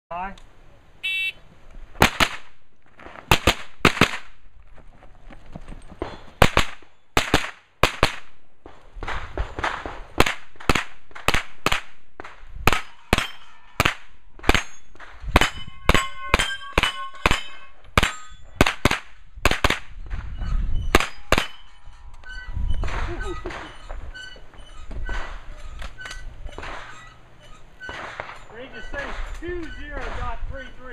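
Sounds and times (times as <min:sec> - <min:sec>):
carbine gunshots: 0:02.0 - 0:04.4, 0:06.0 - 0:08.4, 0:09.0 - 0:19.9, 0:21.0 - 0:21.7
steel targets ringing: 0:12.7 - 0:18.6, 0:20.8 - 0:22.2.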